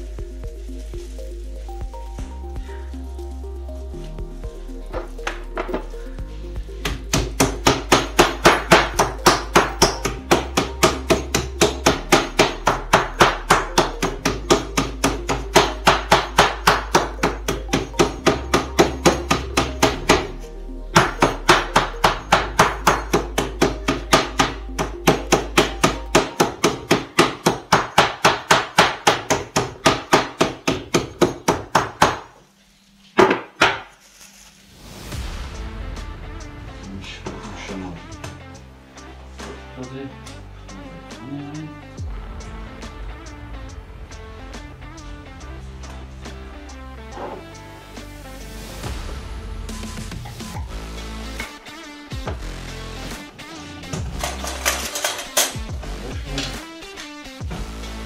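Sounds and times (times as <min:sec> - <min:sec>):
background music: 0:00.0 - 0:58.0
meat pounder beating meat: 0:06.8 - 0:32.4.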